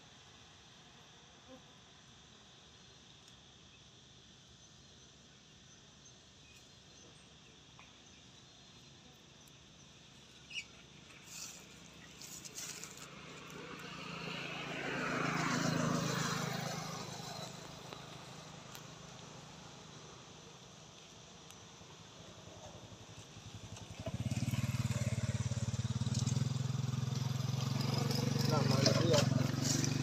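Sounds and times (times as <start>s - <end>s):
faint outdoor background: 0.0s - 30.0s
motor vehicle passing: 11.2s - 20.0s, 22.6s - 30.0s.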